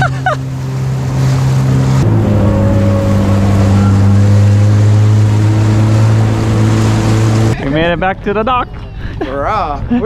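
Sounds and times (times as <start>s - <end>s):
jet ski engine running: 0.0s - 7.9s.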